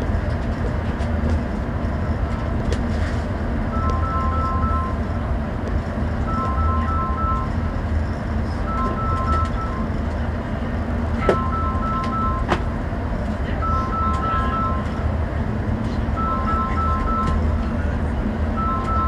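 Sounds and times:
bus engine and road noise: 0.0s - 19.0s
two-pitch electronic beeps: 6.3s - 7.5s, 8.7s - 9.9s, 11.3s - 12.5s, 16.2s - 17.4s, 18.6s - 19.0s.

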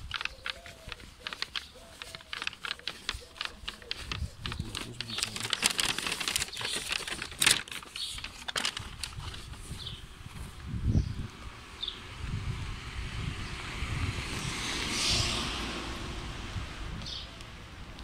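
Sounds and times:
footsteps and handling clicks: 0.0s - 6.6s.

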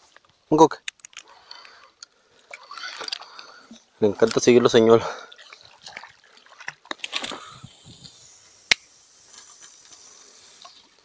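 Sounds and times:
hiss of fishing line and reel: 6.3s - 11.0s.

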